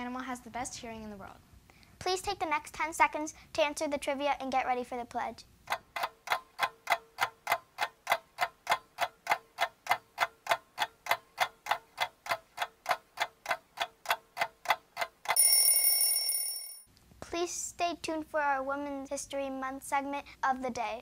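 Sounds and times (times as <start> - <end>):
clock ticking: 5.6 - 16.4
bell ringing: 15.4 - 16.9.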